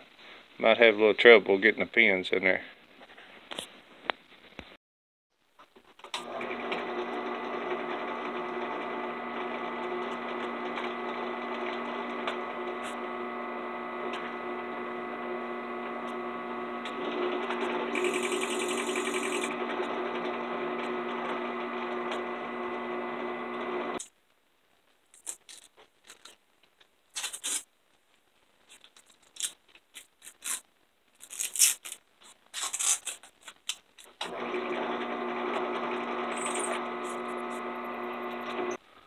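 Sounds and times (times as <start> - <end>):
drill press motor running: 6.2 - 24.0, 34.2 - 38.8.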